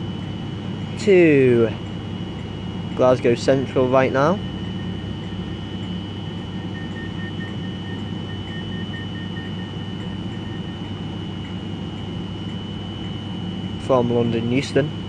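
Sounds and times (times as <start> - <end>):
train equipment humming: 0.0 - 15.0
faint rapid beeping: 0.2 - 15.0
thin high whine: 3.0 - 15.0.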